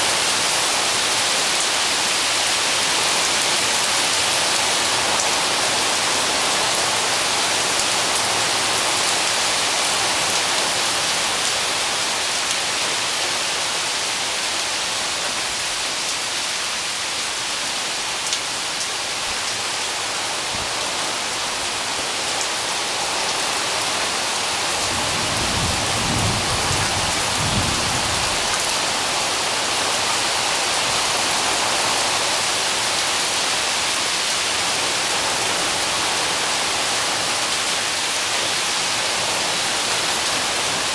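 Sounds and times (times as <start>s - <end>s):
steady rain falling: 0.0s - 40.9s
low rumble of thunder: 24.9s - 28.5s.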